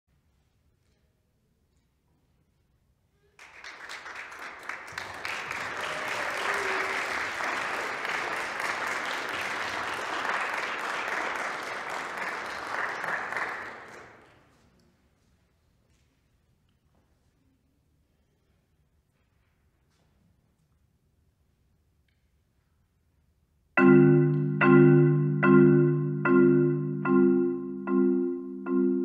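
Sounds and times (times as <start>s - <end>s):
audience applauding: 3.4s - 14.5s.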